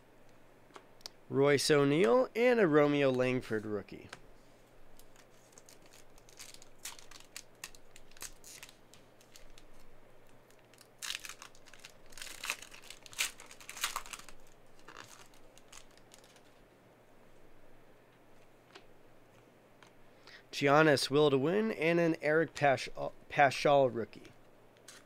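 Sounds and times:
plastic wrapper tearing and crinkling: 5.0s - 16.6s.

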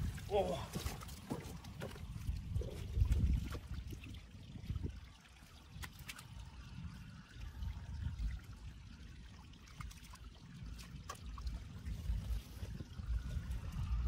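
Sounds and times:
small splashes and drips: 0.0s - 14.0s
water trickling and sloshing: 0.0s - 14.0s
low uneven rumble: 10.3s - 14.0s.

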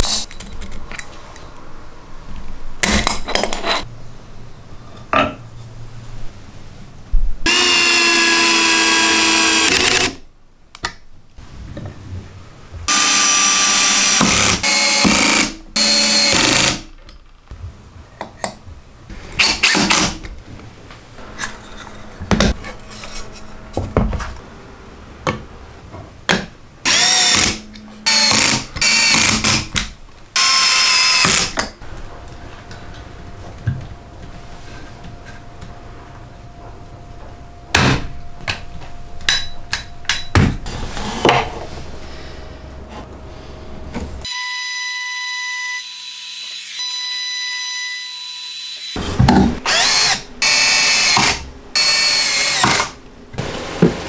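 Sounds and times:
power drill driving screws: 7.5s - 10.2s, 12.9s - 16.8s, 26.9s - 29.7s, 30.4s - 31.6s, 49.7s - 53.0s.

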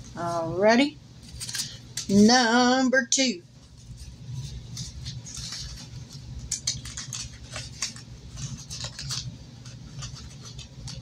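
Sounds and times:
low steady hum: 0.0s - 11.0s
paper rustling: 1.2s - 2.4s, 3.6s - 11.0s.

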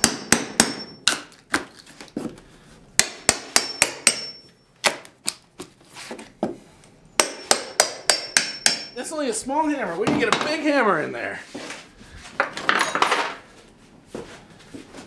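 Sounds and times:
hammer tapping: 3.0s - 4.5s, 7.2s - 9.0s.

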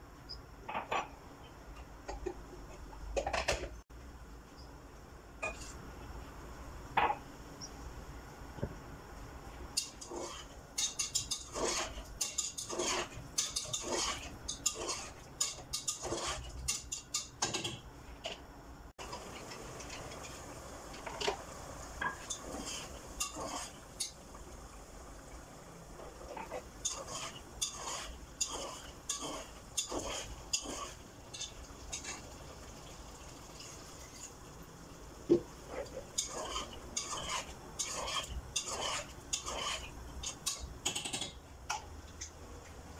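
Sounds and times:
spoon and spatula scraping pot: 5.4s - 5.8s, 9.7s - 18.4s, 22.0s - 24.3s, 25.2s - 32.3s, 35.7s - 41.4s.

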